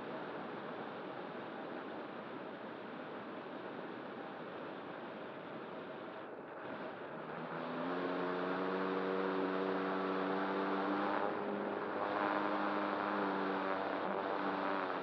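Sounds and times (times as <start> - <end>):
electric motor droning hum: 7.2 - 15.0.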